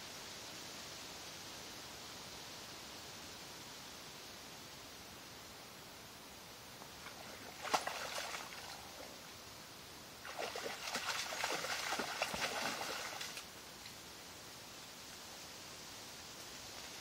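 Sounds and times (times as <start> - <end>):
footsteps splashing through water: 7.0 - 9.2, 10.2 - 13.5.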